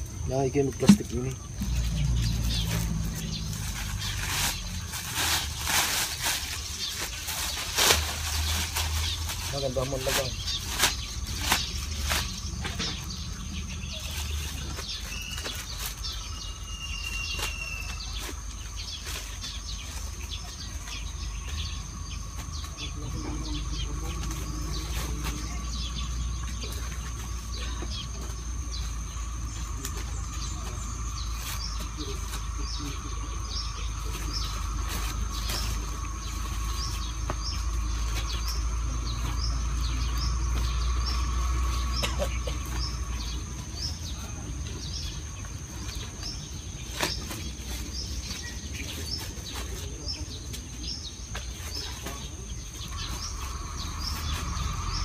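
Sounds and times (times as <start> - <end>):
plastic bags rustling: 0.0 - 23.3
low rumble: 52.6 - 55.0.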